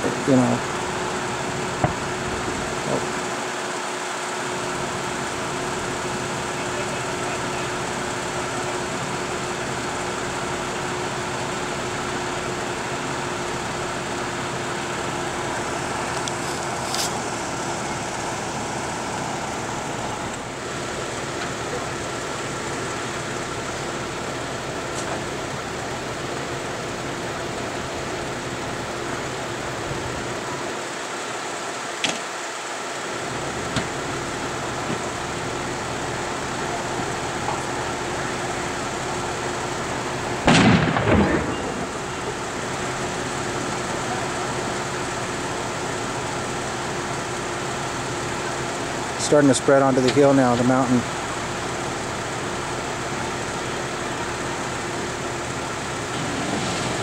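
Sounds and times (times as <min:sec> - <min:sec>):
fire engine engine running: 0:00.0 - 0:57.0
loud bang from burning truck: 0:01.8 - 0:03.1, 0:40.4 - 0:42.4, 0:56.0 - 0:57.0.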